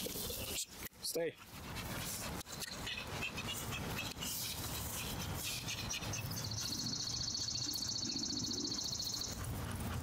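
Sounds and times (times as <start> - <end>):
songbird trilling: 5.9 - 9.4.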